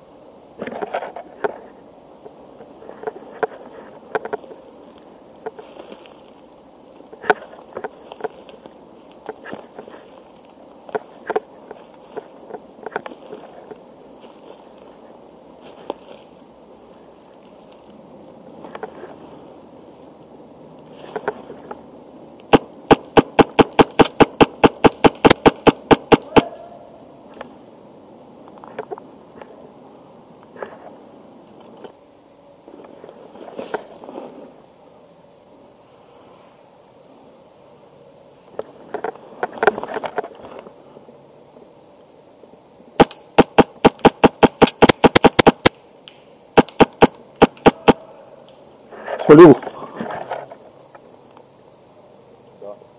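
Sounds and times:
airsoft rifle rapid shots: 0:22.5 - 0:26.5, 0:43.0 - 0:45.7, 0:46.6 - 0:48.0.

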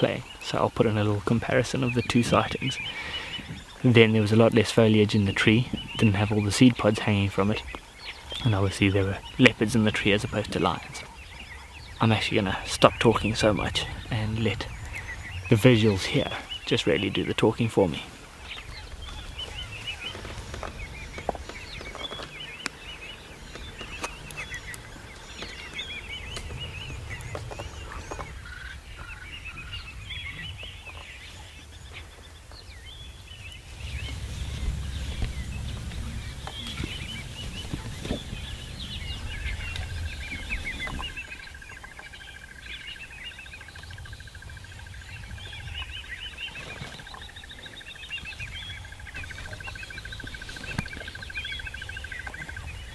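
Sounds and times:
birds calling and chirping: 0:00.0 - 0:52.9
low rumble: 0:32.8 - 0:41.6.

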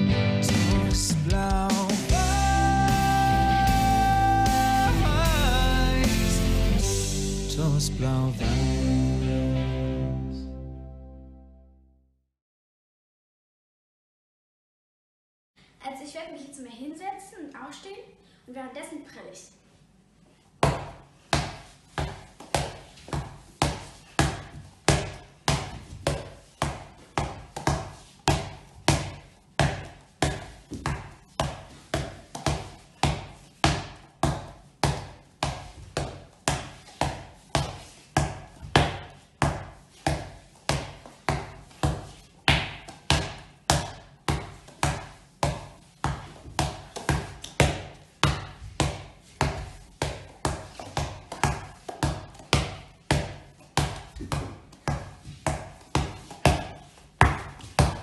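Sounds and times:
ball bouncing on wooden floor: 0:20.6 - 0:58.0.

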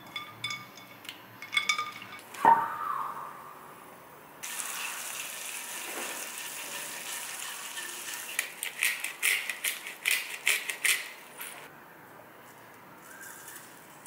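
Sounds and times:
pepper grinder clicking: 0:08.3 - 0:11.2.

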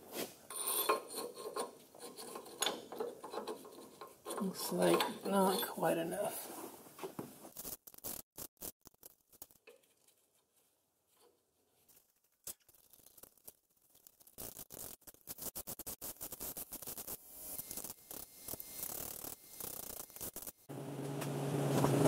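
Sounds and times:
metal parts scraping and clicking: 0:00.5 - 0:06.3, 0:07.6 - 0:10.2, 0:12.5 - 0:20.7.

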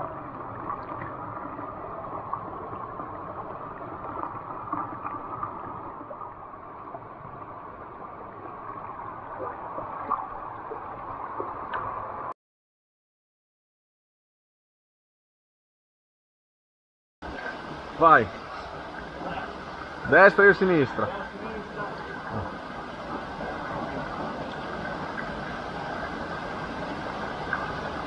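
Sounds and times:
stream water rushing and gurgling: 0:17.2 - 0:28.0.

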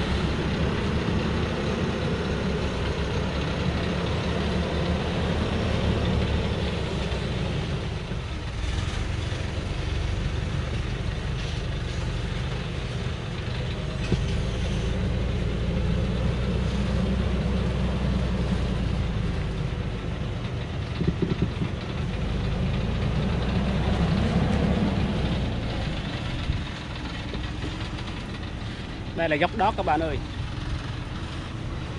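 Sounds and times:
truck engine running slowly: 0:00.0 - 0:31.9
clatter of knocks: 0:20.9 - 0:21.9.

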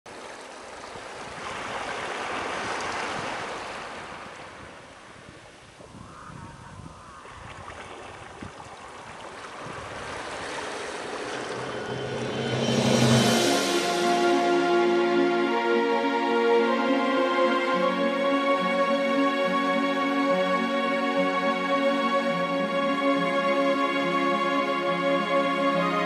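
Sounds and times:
small waves on a sandy beach: 0:00.1 - 0:12.0.

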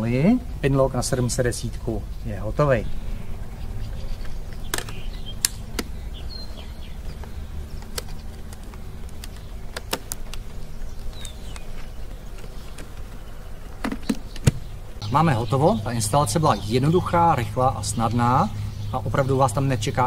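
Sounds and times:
steady low rumble: 0:00.0 - 0:20.0
plastic clicks and knocks: 0:04.6 - 0:05.9, 0:07.1 - 0:14.6.

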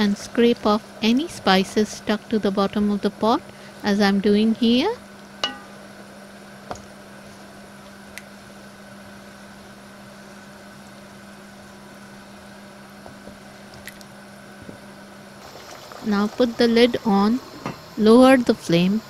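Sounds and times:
steady low hum: 0:00.0 - 0:19.0
spatula knocking against pot: 0:05.4 - 0:05.7.

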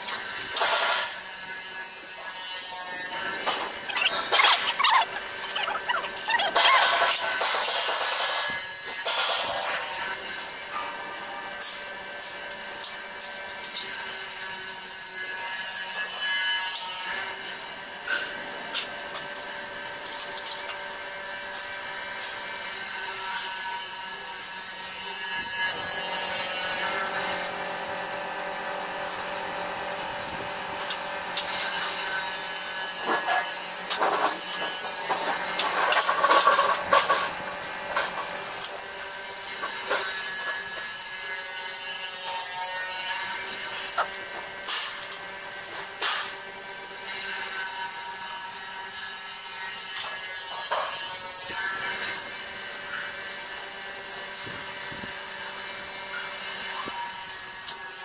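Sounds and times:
steady mechanical hum: 0:00.0 - 0:58.0.

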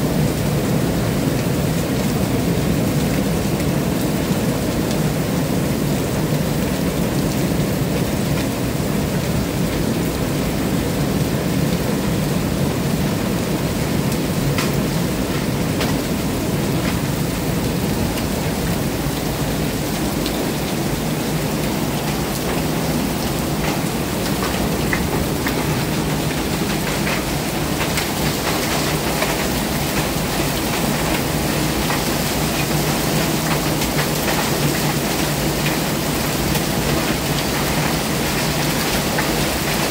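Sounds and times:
rain falling: 0:00.0 - 0:39.9
raindrops ticking: 0:14.1 - 0:39.9.

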